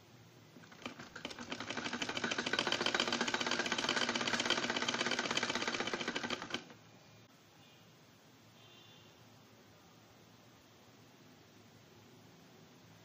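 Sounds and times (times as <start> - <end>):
sewing machine clatter: 0.6 - 6.8.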